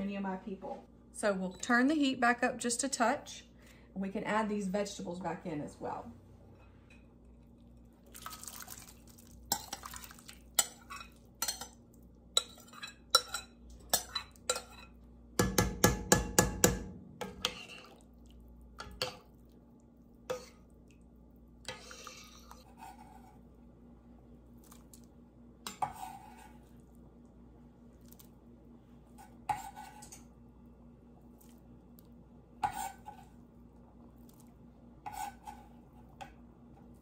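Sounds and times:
metal spoon scraping bowl: 0:17.2 - 0:18.0, 0:21.7 - 0:23.4, 0:25.7 - 0:26.6, 0:35.0 - 0:35.7.

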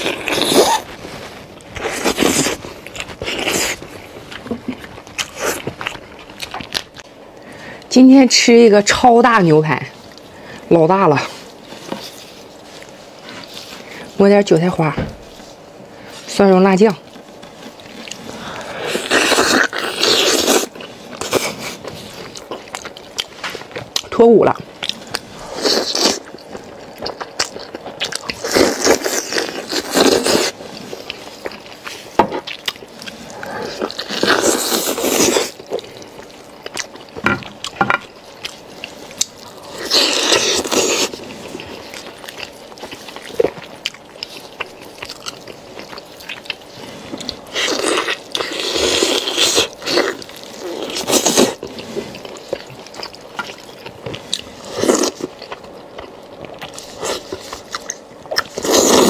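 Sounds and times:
wet chewing: 0:24.7 - 0:59.0.

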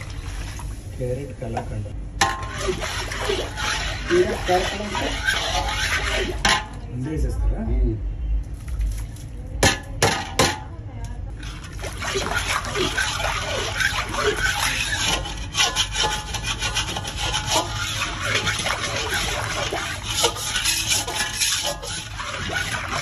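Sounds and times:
metal spoon scraping a pan: 0:02.2 - 0:06.8, 0:11.4 - 0:23.0.

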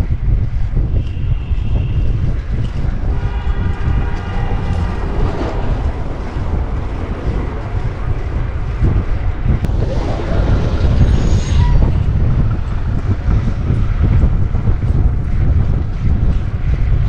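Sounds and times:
wind rumbling on microphone: 0:00.0 - 0:17.0
wavering pitched horn tone: 0:01.0 - 0:09.2.

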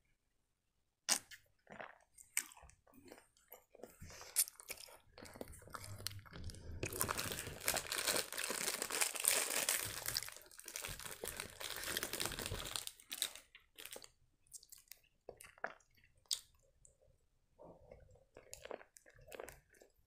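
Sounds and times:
plastic wrapper crinkling: 0:05.8 - 0:14.1.

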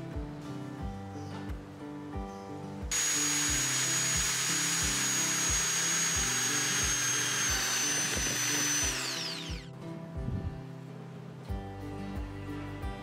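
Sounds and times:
drill press motor whine: 0:02.9 - 0:09.7.

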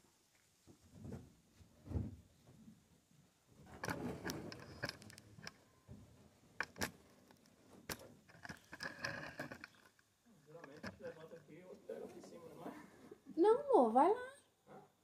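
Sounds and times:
rustling scrape: 0:03.7 - 0:05.2.

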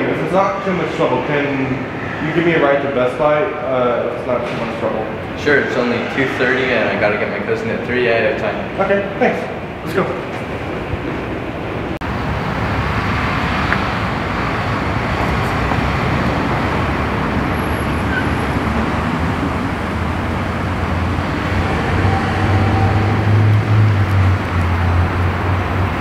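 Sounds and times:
road traffic noise: 0:00.0 - 0:26.0
car engine hum: 0:12.0 - 0:26.0.

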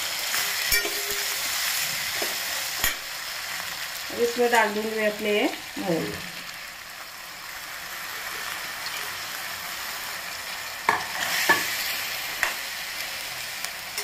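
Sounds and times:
vegetables sizzling in a pan: 0:00.0 - 0:14.0
steel spoon clinking on pan: 0:00.7 - 0:01.3.

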